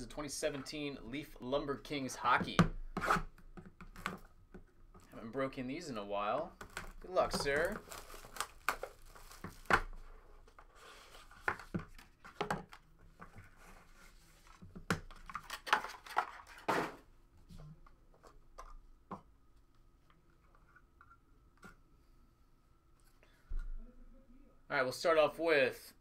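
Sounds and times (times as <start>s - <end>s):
shrink wrap tearing and crinkling: 6.7s - 10.0s.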